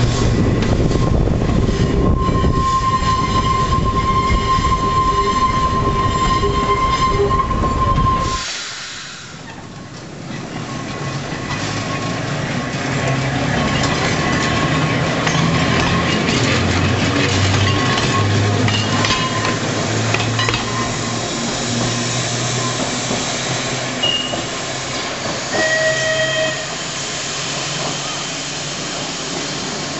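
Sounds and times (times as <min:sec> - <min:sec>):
steel wheels clicking over rail joints: 0:09.5 - 0:29.9.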